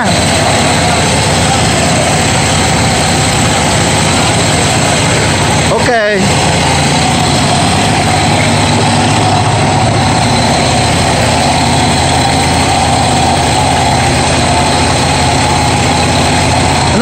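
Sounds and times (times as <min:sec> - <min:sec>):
pump engine running: 0:00.0 - 0:17.0.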